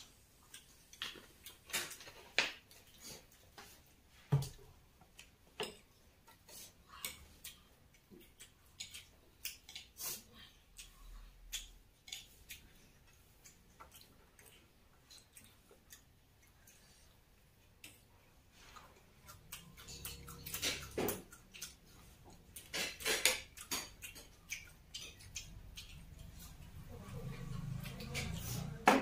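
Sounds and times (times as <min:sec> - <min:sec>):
chewing smacks: 0:05.2 - 0:28.6
fork against plates: 0:18.6 - 0:29.0.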